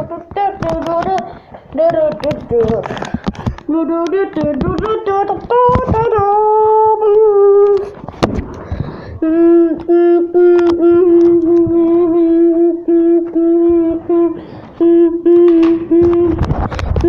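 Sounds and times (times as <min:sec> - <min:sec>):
child humming: 0:09.2 - 0:16.6.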